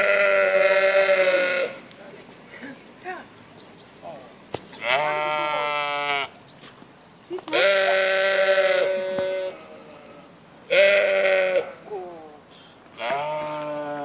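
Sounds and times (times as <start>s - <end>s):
sheep bleating: 0.0s - 1.9s, 4.8s - 6.3s, 7.5s - 12.0s, 13.0s - 14.0s.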